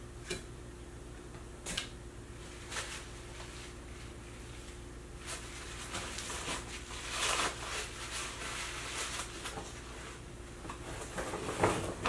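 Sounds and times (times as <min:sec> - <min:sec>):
low electrical hum: 0:00.0 - 0:12.0
soft rustling and handling: 0:02.4 - 0:12.0.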